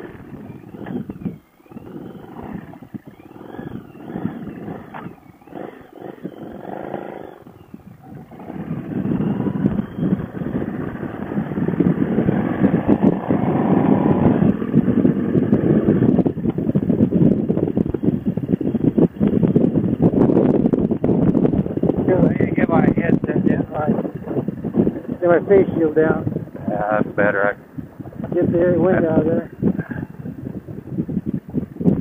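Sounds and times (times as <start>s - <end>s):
wavering high tone: 0.0s - 11.2s
motorcycle engine running: 0.0s - 32.0s
wind noise: 0.0s - 32.0s.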